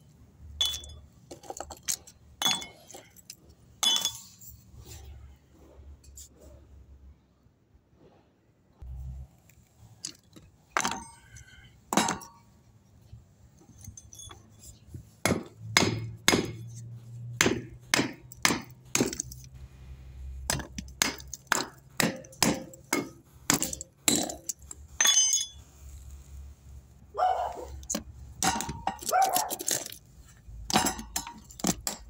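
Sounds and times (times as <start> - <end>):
hammer striking concrete: 15.2 - 16.6, 17.4 - 19.3, 20.5 - 25.5, 27.9 - 29.1, 30.7 - 32.0.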